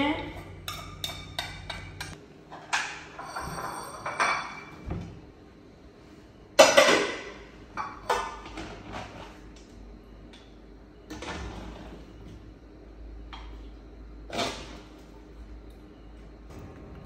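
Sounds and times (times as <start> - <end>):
metal cookware clanking: 0.4 - 4.8.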